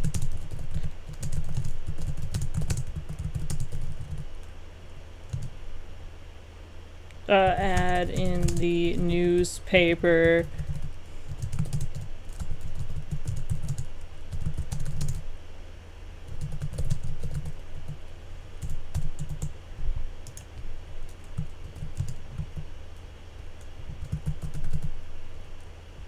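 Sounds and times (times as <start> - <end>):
computer keyboard typing: 0.0 - 4.3, 5.3 - 5.5, 7.4 - 9.1, 10.2 - 15.2, 16.3 - 18.0, 18.6 - 19.5, 20.2 - 22.7, 23.9 - 25.0.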